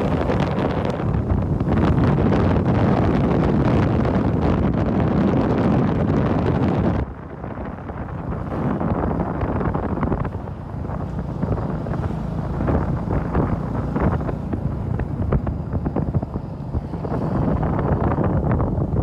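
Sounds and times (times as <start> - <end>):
wind buffeting microphone: 0.0 - 19.0
motorcycle engine running: 6.8 - 19.0.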